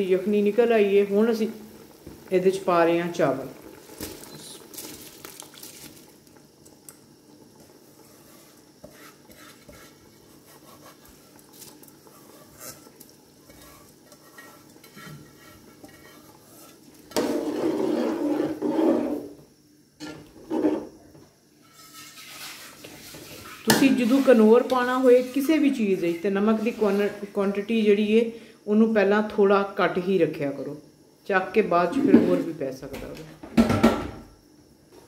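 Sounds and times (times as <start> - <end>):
faint steady bubbling: 0.0 - 17.9
metal ladle scraping a pot: 7.9 - 19.3, 20.0 - 20.9, 21.6 - 27.3.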